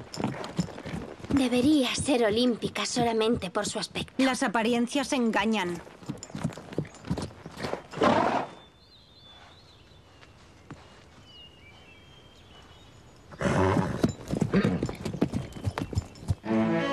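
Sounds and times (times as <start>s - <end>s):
hoofbeats: 0.0s - 4.4s, 5.3s - 8.7s, 9.3s - 16.9s
horse whinny: 7.9s - 8.6s, 13.4s - 14.9s.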